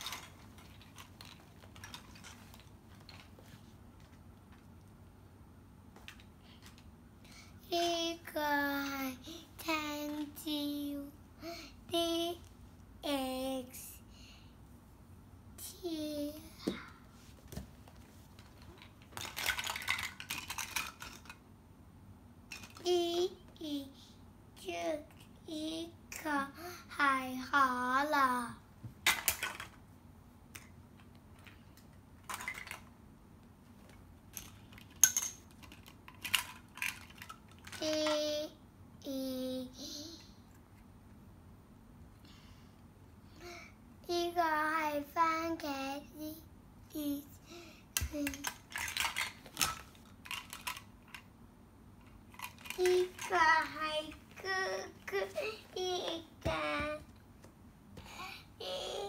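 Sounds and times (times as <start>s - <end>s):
plastic toy pieces clattering: 0.0s - 3.3s, 18.5s - 21.4s, 22.5s - 22.9s, 29.0s - 29.8s, 30.6s - 32.9s, 34.3s - 38.2s, 48.0s - 51.3s, 52.0s - 56.1s
girl singing wordless sounds: 44.0s - 47.3s, 52.8s - 57.1s.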